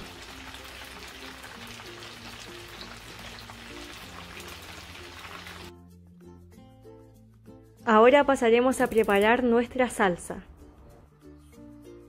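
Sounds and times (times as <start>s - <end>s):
hot oil crackling: 0.0s - 5.7s
soft background music: 0.0s - 12.0s.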